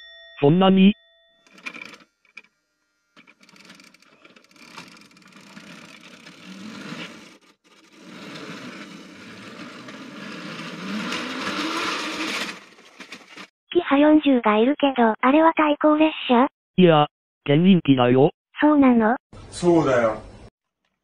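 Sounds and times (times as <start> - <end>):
plastic wheels rattling on track: 1.5 - 2.5, 3.2 - 13.5
toy train motor whirring: 1.5 - 2.5, 3.2 - 13.5.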